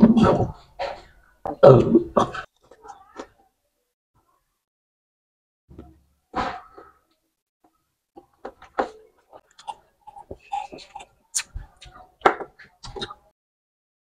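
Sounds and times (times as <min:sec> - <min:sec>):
mouth eating sounds: 0:09.4 - 0:13.3
sipping through a straw: 0:09.6 - 0:12.0.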